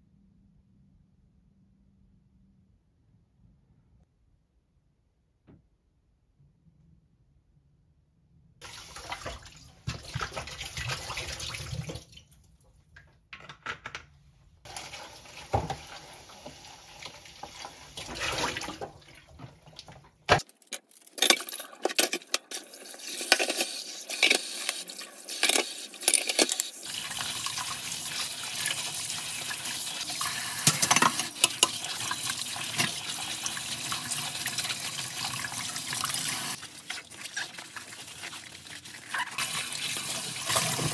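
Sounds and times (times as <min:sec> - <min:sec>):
tap water running into sink: 0:14.7 - 0:19.0, 0:22.5 - 0:40.9
dishes clinking: 0:30.6 - 0:31.8.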